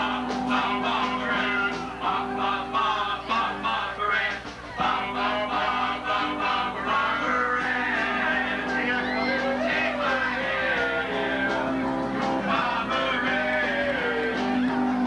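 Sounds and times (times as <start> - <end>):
several voices singing: 0.0 - 15.0
live rock band playing: 7.2 - 15.0.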